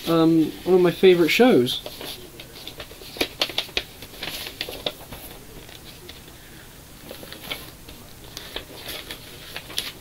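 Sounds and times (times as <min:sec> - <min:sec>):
paper rustling and crinkling: 0:00.0 - 0:06.4, 0:07.0 - 0:10.0.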